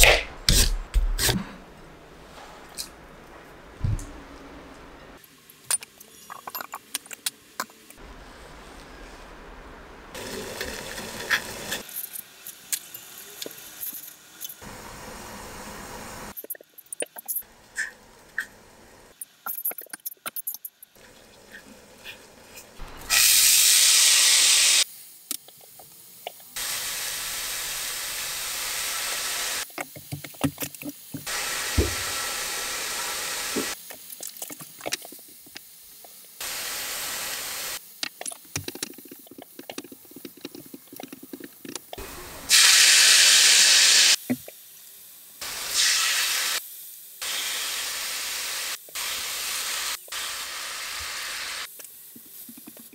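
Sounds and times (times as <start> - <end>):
root sizzling in a frying pan: 10.1 - 14.6, 42.0 - 52.5.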